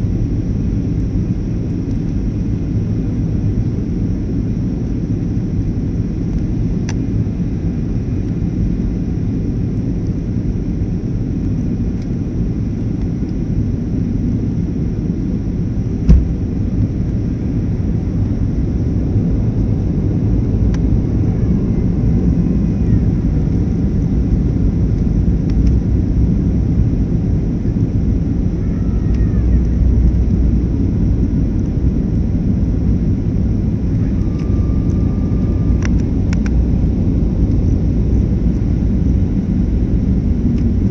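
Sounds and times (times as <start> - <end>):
jet engines rumbling: 0.0 - 40.9
rushing air in cabin: 15.8 - 17.8
sharp knock: 16.1 - 16.4.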